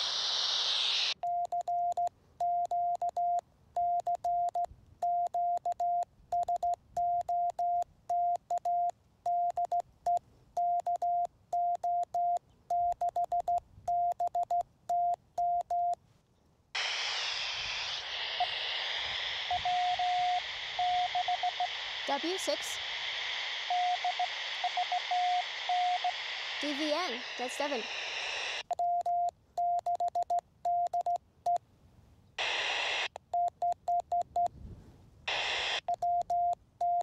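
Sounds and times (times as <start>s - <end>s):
radio receiver hiss: 0.0s - 1.2s, 16.7s - 28.7s, 32.4s - 33.2s, 35.3s - 36.0s
morse code tone: 19.5s - 22.5s, 23.7s - 27.8s.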